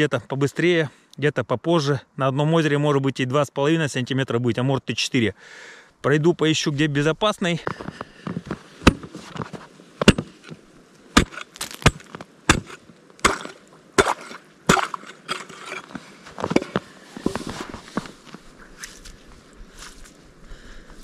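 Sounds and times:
ice chisel chopping ice: 8.8 - 9.1, 11.2 - 16.8.

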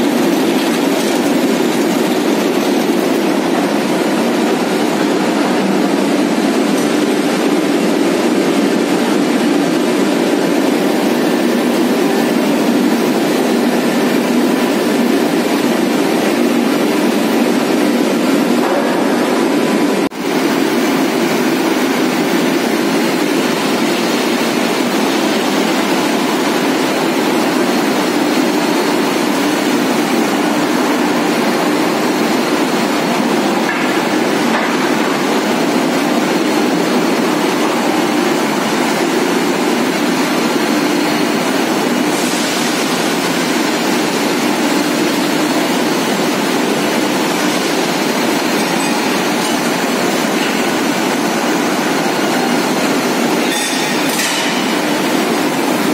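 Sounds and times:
rolling mill industrial din: 0.0 - 55.9.

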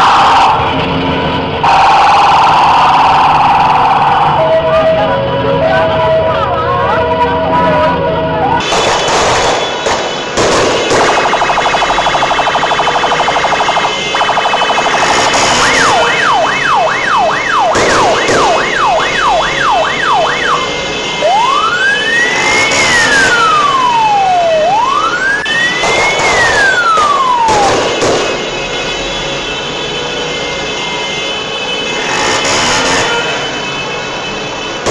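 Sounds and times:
ambulance siren: 0.0 - 34.9
sharp bangs: 8.6 - 20.8, 25.5 - 29.0.

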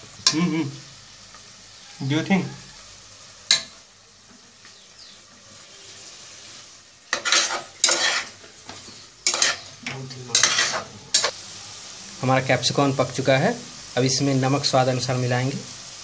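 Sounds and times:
vegetables sizzling in oil: 0.0 - 16.0
spoon scraping pot: 7.1 - 11.3.

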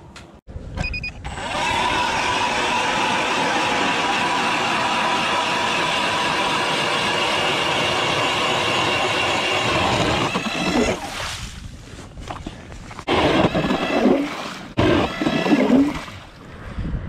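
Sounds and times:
ice auger drilling: 1.3 - 11.0, 13.0 - 16.3.

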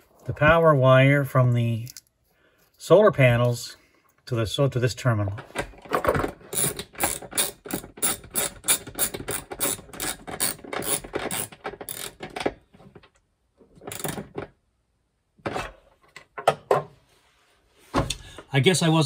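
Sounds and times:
socket ratchet clicking: 6.6 - 12.2.

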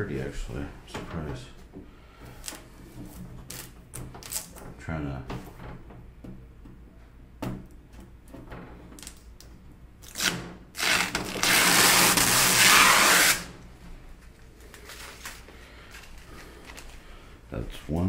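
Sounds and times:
plastic film peeling: 2.4 - 2.7, 3.4 - 4.6, 9.0 - 9.3, 10.0 - 13.6, 14.2 - 17.0
small crackles of plastic film: 14.2 - 17.0.

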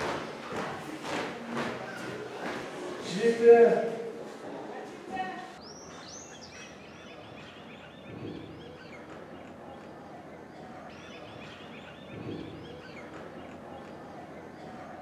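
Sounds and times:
small birds chirping: 5.6 - 15.0.

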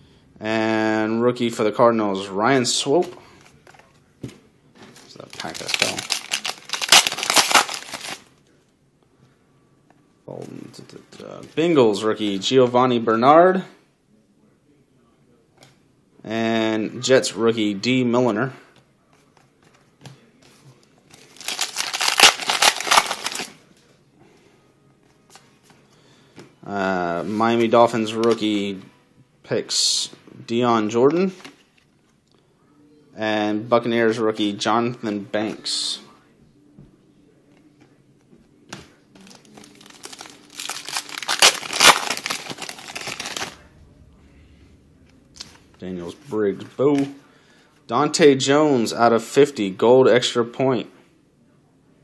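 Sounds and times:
foil wrapper crinkling: 5.2 - 8.2, 21.2 - 23.5, 39.2 - 43.6.

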